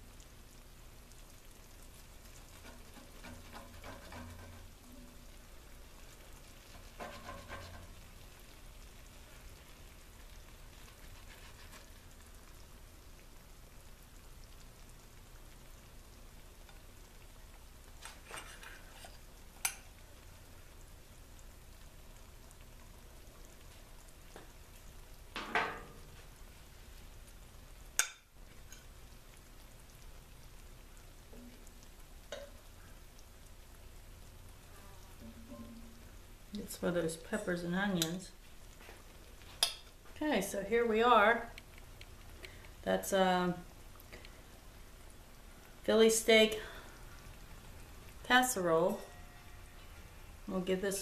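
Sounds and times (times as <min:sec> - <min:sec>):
faint steady hiss: 0:00.0 - 0:51.0
utensils scraping metal pot: 0:02.6 - 0:04.8, 0:06.8 - 0:08.0, 0:18.0 - 0:19.8.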